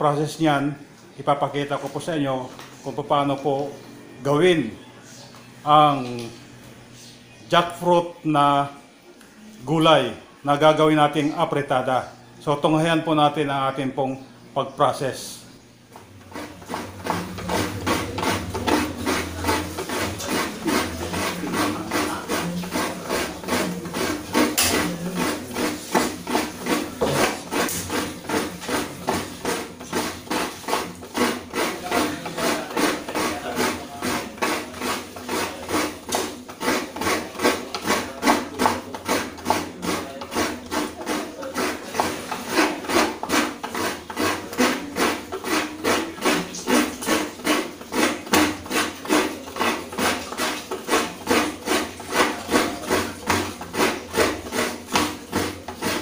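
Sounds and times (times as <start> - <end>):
coconut scraped on metal grater: 16.0 - 56.0.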